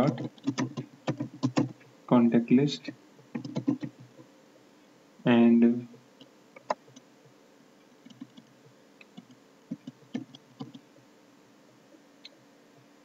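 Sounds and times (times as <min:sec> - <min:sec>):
keyboard keystrokes: 0:00.0 - 0:01.8, 0:03.4 - 0:04.1, 0:08.1 - 0:10.8.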